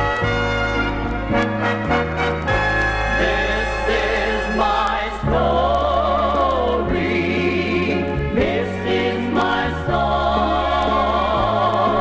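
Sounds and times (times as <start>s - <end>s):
instrumental backing with bass line: 0.0s - 12.0s
gospel singing: 2.8s - 12.0s.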